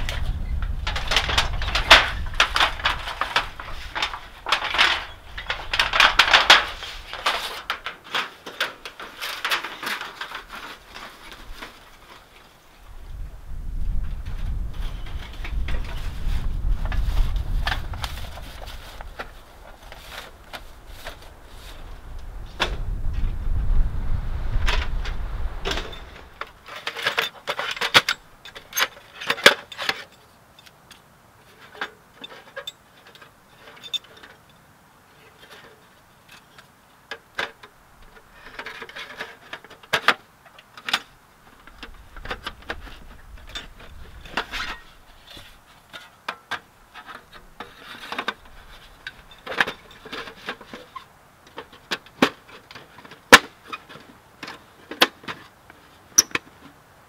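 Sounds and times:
metal clanks and scrapes: 0.0s - 12.4s, 42.2s - 55.4s.

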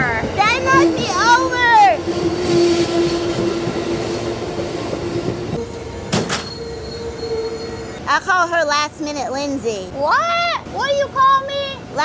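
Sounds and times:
train cars rolling past: 0.0s - 10.0s
steady wheel squeal: 2.0s - 8.0s.

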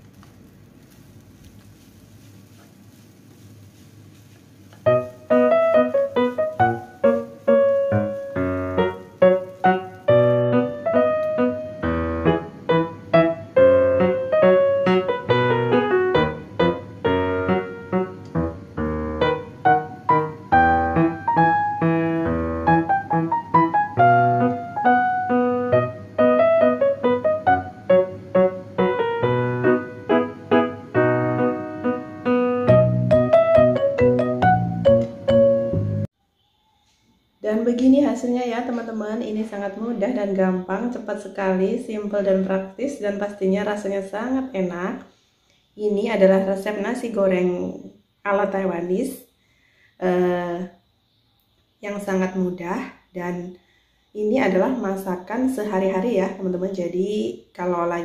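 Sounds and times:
piano music: 4.8s - 36.1s.

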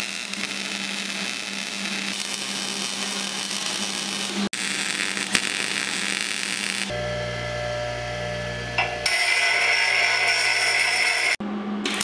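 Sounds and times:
welding arc crackling hiss: 0.0s - 12.0s
low hum: 6.6s - 9.1s.

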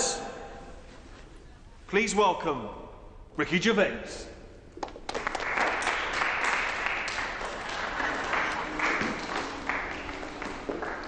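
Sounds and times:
people clapping: 4.8s - 11.0s.

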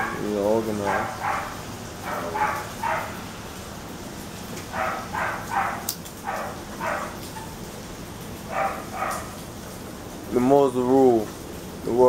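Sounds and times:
dog barking: 0.0s - 3.2s, 4.7s - 7.5s, 8.5s - 9.4s
rain hissing: 0.0s - 12.0s.

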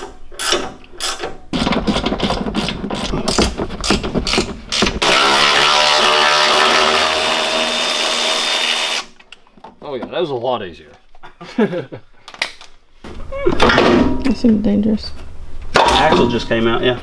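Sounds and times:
cordless power tool motor: 5.0s - 9.2s.

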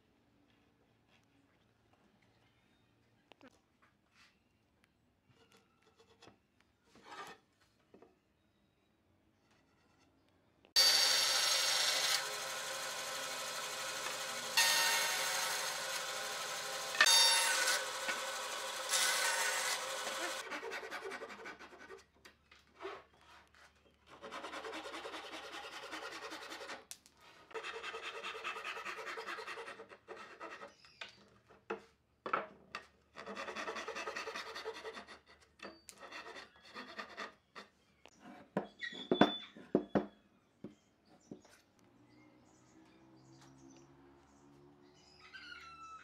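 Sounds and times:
band saw cutting wood: 10.8s - 21.7s
handsaw cutting wood: 10.8s - 22.0s, 24.1s - 26.9s, 27.5s - 30.7s, 33.2s - 35.2s.

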